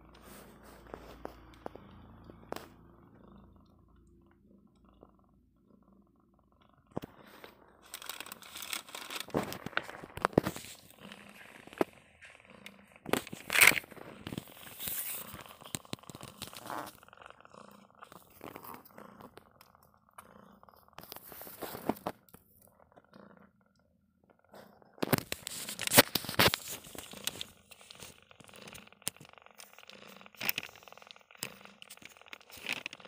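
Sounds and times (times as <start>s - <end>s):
plastic bag crinkling: 7.8s - 11.8s.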